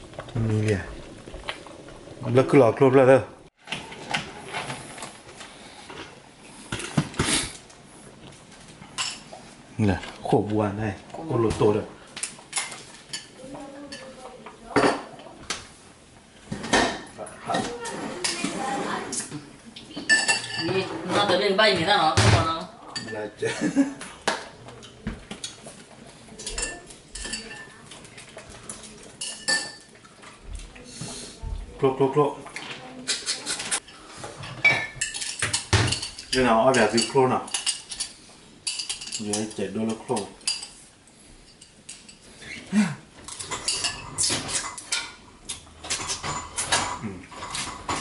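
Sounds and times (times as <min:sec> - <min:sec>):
metal utensils clinking on a pot: 0:20.1 - 0:21.9, 0:22.9 - 0:23.4, 0:26.3 - 0:30.0, 0:33.0 - 0:40.8, 0:43.3 - 0:48.0.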